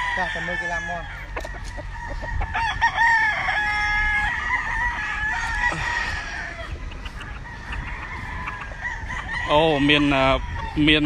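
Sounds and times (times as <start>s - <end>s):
roosters crowing: 0.0s - 11.0s.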